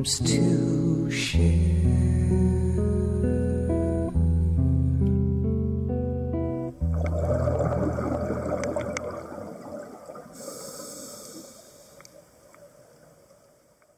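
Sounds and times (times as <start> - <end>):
underwater bubbling: 6.7 - 13.9
diver breathing through regulator: 10.3 - 12.1
hiss: 10.3 - 12.4.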